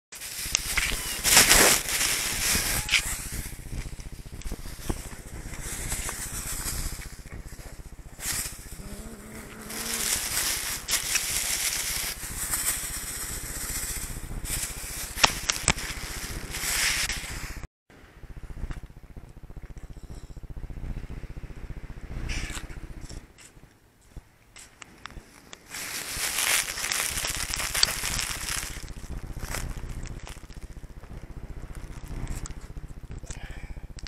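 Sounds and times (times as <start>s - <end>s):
dry cat food rattling in bag: 0.2s - 3.5s, 8.2s - 16.9s, 25.7s - 30.8s.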